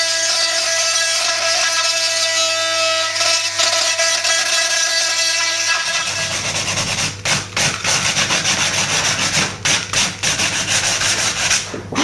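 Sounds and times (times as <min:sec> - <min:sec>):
sanding pad rasping: 0:00.0 - 0:11.8
steady low hum: 0:10.6 - 0:12.0.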